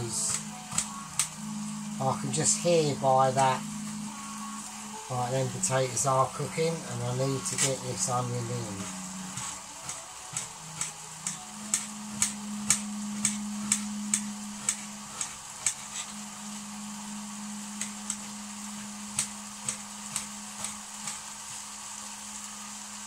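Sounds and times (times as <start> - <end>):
food sizzling in a pan: 0.0 - 23.0
low steady hum: 0.0 - 23.0
knife chopping onion on board: 8.8 - 16.1.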